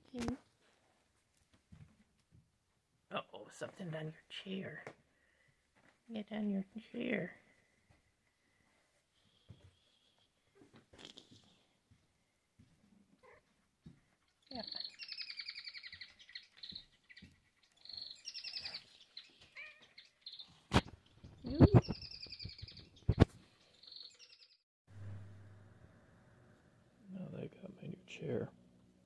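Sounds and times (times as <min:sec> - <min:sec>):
animal chirping trills: 0:14.4 - 0:20.6.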